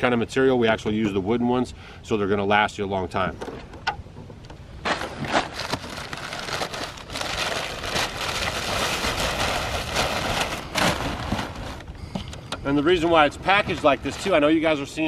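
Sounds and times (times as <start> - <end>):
packing paper rustling and crinkling: 4.9 - 15.0.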